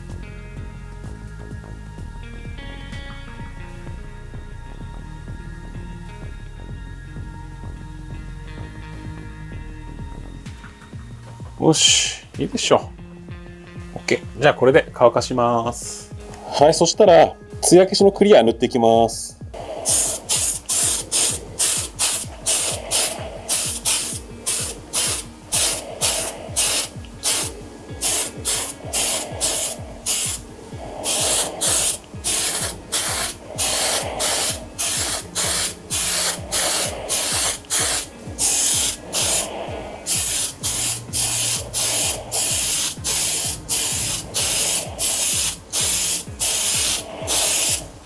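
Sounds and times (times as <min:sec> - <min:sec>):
aerosol spray can hissing: 0:19.6 - 0:48.0.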